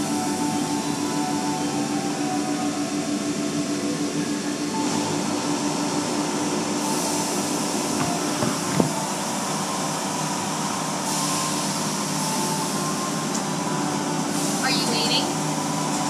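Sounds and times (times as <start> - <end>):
car wash machinery hum: 0.0 - 16.0.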